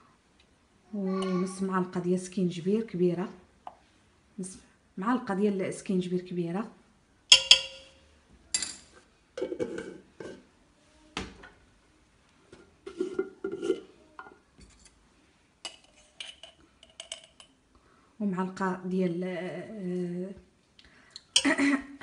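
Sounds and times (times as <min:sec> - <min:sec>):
metal spoon clinking on pot: 0:07.3 - 0:09.9, 0:15.6 - 0:17.6.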